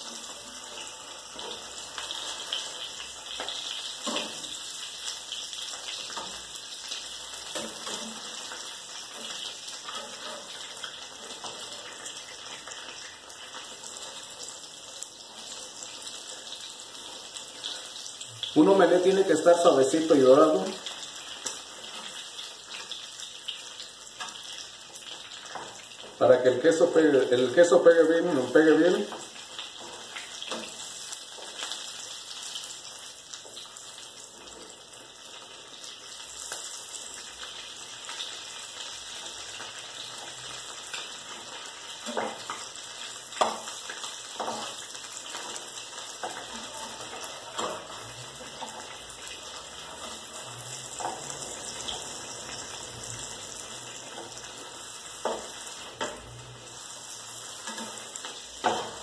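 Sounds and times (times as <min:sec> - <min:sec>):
omelette sizzling in a pan: 0:00.0 - 0:59.0
utensil tapping a frying pan: 0:43.3 - 0:46.6.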